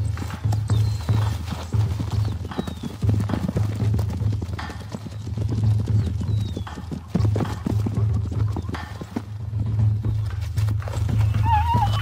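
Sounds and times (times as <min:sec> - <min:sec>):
hooves galloping on dry ground: 0:00.0 - 0:12.0
short high animal calls: 0:11.3 - 0:12.0.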